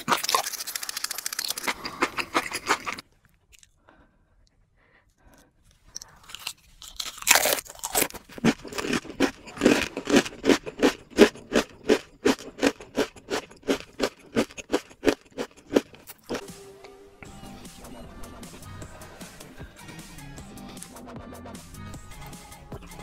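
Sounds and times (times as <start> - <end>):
crunchy chip bite: 0.0 - 3.0, 5.9 - 16.4
crisp crunching chews: 0.0 - 3.8, 5.7 - 16.4.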